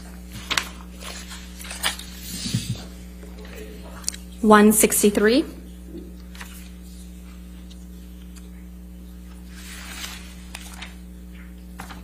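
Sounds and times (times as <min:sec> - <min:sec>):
electrical hum: 0:00.0 - 0:12.0
paper rustling: 0:00.3 - 0:02.9, 0:06.2 - 0:08.5, 0:09.2 - 0:12.0.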